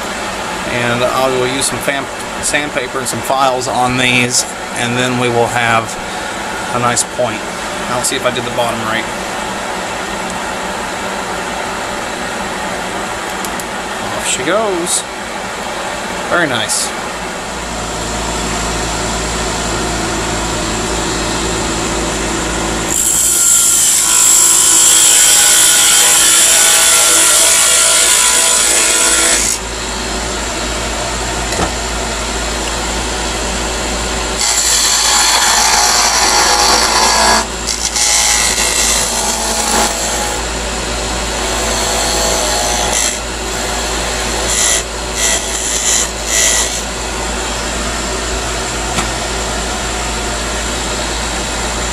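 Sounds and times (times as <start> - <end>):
wood lathe motor hum: 22.8 - 29.6, 34.4 - 47.0
turning tool cutting wood: 22.9 - 29.6, 34.4 - 40.5, 41.3 - 46.9.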